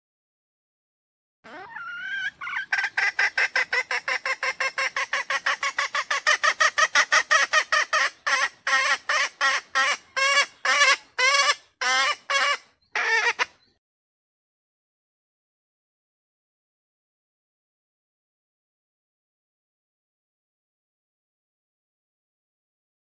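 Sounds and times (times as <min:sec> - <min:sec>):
junglefowl hen calling: 0:01.5 - 0:13.7.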